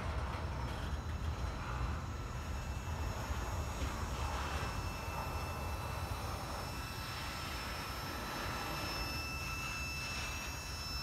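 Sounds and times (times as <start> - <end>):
train wheels rumbling on rail: 0.0 - 8.8
high-pitched whine: 0.0 - 11.0.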